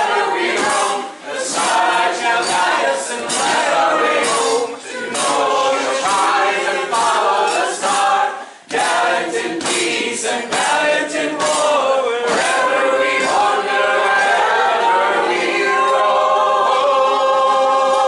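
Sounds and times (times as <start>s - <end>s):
group singing unaccompanied: 0.0s - 18.0s.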